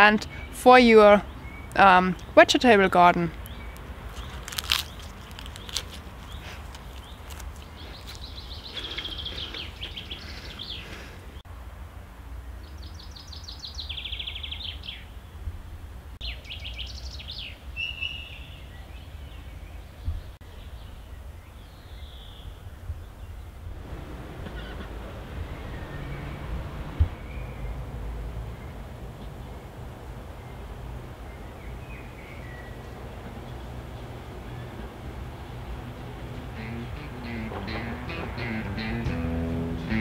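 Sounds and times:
songbirds chirping: 0:00.0 - 0:11.4, 0:12.4 - 0:15.4, 0:16.2 - 0:40.0
flower being bitten crunch: 0:04.1 - 0:09.5
low background rumble: 0:23.6 - 0:40.0.

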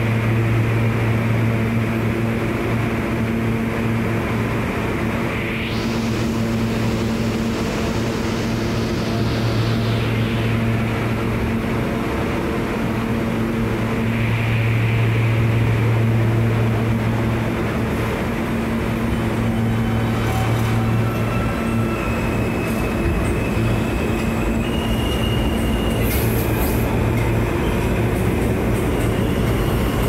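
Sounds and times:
subway train rumbling: 0:00.0 - 0:30.0.

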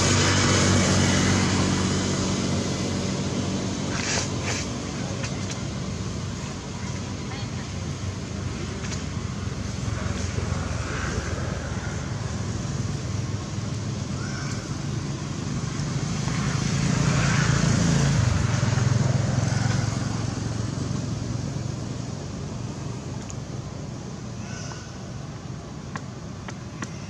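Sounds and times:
vehicle engine passing by: 0:00.0 - 0:07.5, 0:08.9 - 0:22.9.

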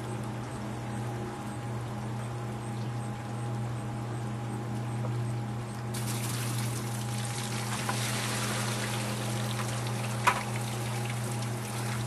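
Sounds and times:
sump pump humming: 0:00.0 - 0:12.0
water gushing into bucket: 0:05.9 - 0:12.0.

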